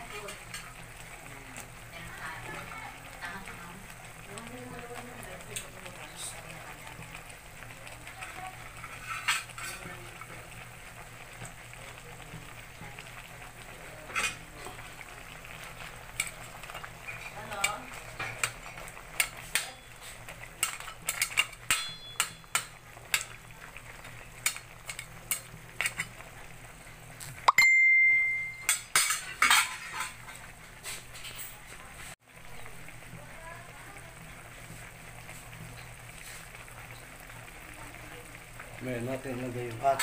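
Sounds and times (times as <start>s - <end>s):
food simmering with faint sizzle: 0.0s - 40.0s
spatula knocking metal pot: 21.1s - 23.3s.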